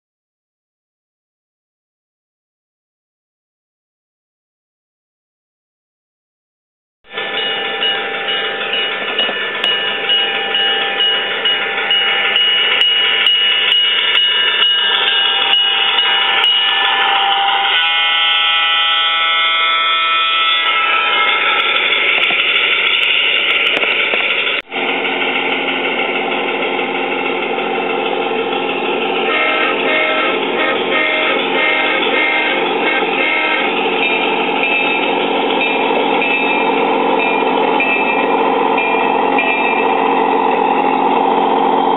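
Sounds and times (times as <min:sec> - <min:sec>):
ringing bell strikes: 0:07.1 - 0:17.8, 0:34.0 - 0:41.1
diesel locomotive engine sound: 0:07.1 - 0:41.9
multi-tone locomotive horn: 0:15.0 - 0:21.4, 0:29.2 - 0:34.1.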